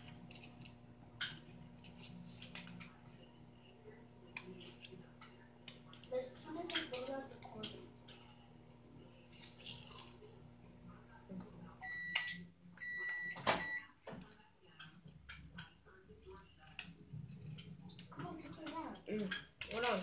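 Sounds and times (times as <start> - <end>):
microwave oven humming: 0.0 - 14.0
microwave beeping: 11.8 - 14.0.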